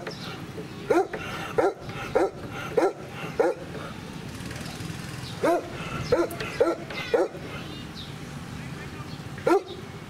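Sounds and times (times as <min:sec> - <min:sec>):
dog barking: 0:00.9 - 0:03.7, 0:05.4 - 0:07.4, 0:09.4 - 0:09.8.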